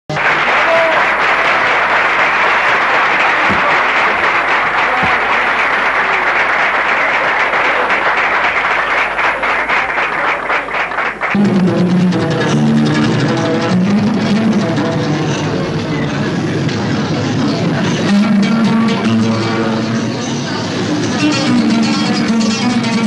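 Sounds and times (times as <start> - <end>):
audience applauding: 0.1 - 12.4.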